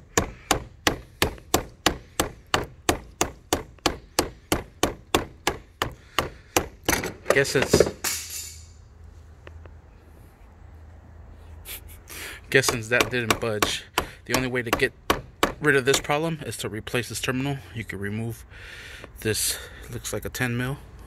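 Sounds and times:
screwdriver handle knocking on metal: 0:12.6 - 0:16.1.

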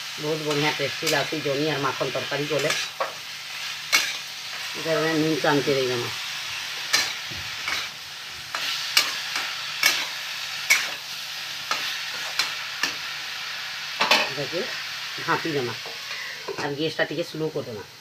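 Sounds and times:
vegetables sizzling: 0:00.0 - 0:18.0
metal spatula scraping a pan: 0:02.0 - 0:04.8, 0:06.5 - 0:13.1.

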